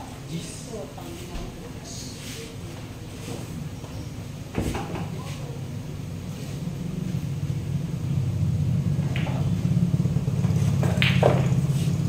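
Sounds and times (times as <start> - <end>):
motor engine rumbling: 3.0 - 12.0.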